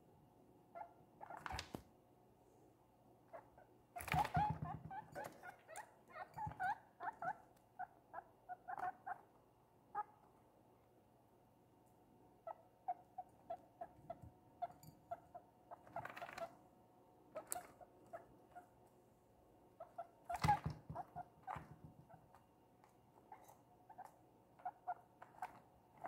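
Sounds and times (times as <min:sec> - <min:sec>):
guinea pig squeaking: 0:00.7 - 0:01.8, 0:03.3 - 0:10.2, 0:12.4 - 0:16.6, 0:17.3 - 0:18.8, 0:19.8 - 0:22.5, 0:23.2 - 0:26.0.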